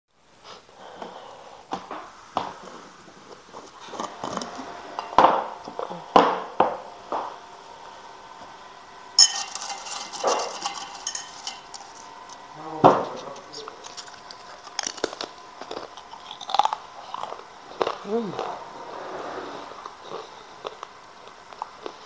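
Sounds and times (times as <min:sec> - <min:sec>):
glass jars knocking and clinking: 0:09.2 - 0:12.1
crackers rattling in jar: 0:09.2 - 0:12.4, 0:13.1 - 0:17.4.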